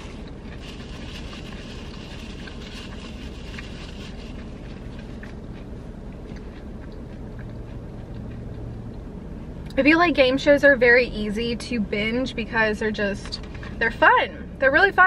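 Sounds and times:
person chewing crunchy food: 0:00.0 - 0:09.6
low hum inside car: 0:00.0 - 0:15.0.

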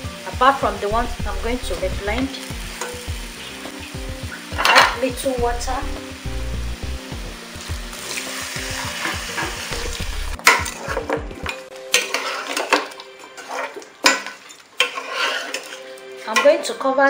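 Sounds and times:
meat sizzling in a pot: 0:00.0 - 0:16.8
metal spoon scraping pot: 0:11.9 - 0:16.7.

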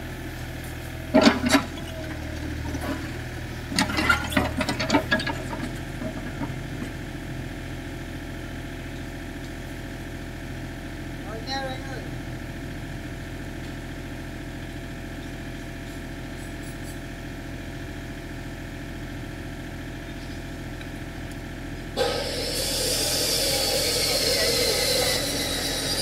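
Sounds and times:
diesel engine idling: 0:17.2 - 0:26.0.

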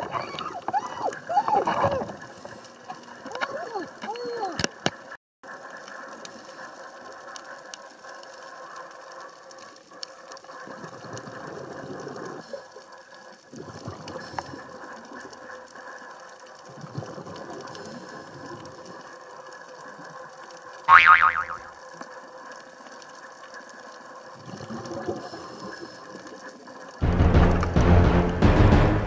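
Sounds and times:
rushing bubbles: 0:05.5 - 0:20.2, 0:23.8 - 0:27.8
underwater hiss: 0:05.6 - 0:20.9, 0:21.9 - 0:27.0.

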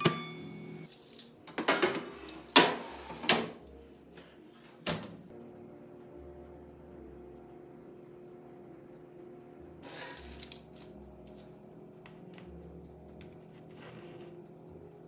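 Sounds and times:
low steady hum: 0:00.0 - 0:00.9, 0:05.3 - 0:09.8, 0:10.6 - 0:15.0
metal spatula scraping baking sheet: 0:02.1 - 0:03.3, 0:09.8 - 0:10.5, 0:13.6 - 0:14.3.

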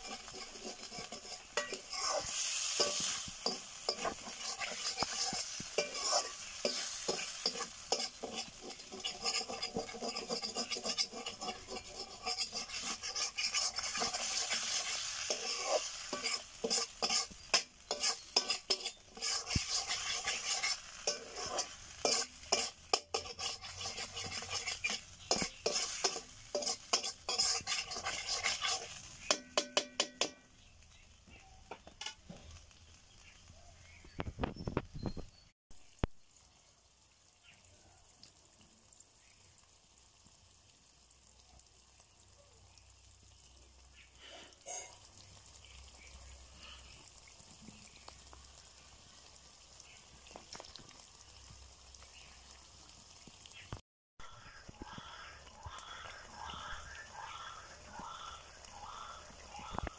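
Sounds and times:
wooden spatula scraping a pan: 0:00.0 - 0:30.4
food sizzling in a metal pan: 0:00.0 - 0:59.9
spatula knocking against a pan: 0:29.3 - 0:30.5.

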